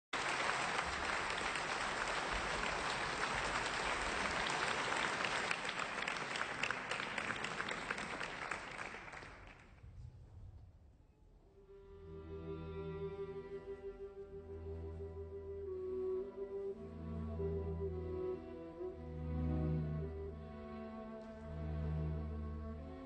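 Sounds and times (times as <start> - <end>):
audience applauding: 0.1 - 9.7.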